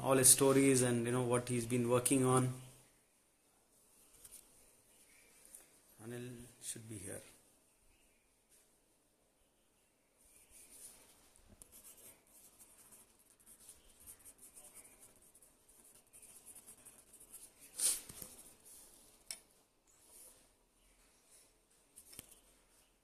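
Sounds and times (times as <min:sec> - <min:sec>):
scratching and rubbing: 0:10.3 - 0:19.2
sharp scrape: 0:17.7 - 0:18.2.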